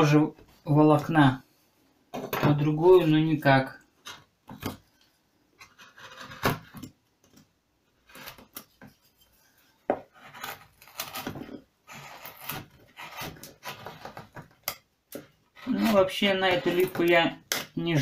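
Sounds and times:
chisel scraping wood: 5.6 - 6.9, 8.0 - 14.5.

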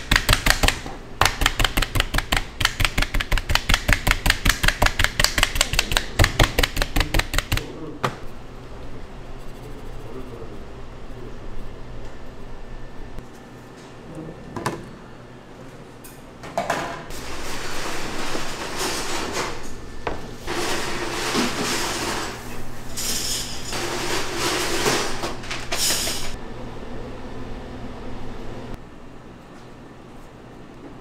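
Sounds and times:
steady low hum: 0.0 - 16.3.

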